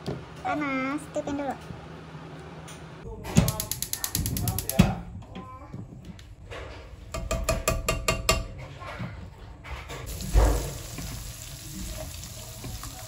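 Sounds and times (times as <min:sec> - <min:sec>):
ratchet-like clicks: 0:03.5 - 0:04.8
frying sizzle in a wok: 0:10.1 - 0:13.0.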